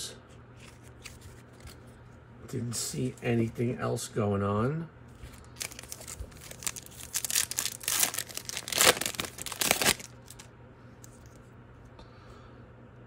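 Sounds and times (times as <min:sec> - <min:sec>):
wrapper tearing and crinkling: 0:05.3 - 0:10.5.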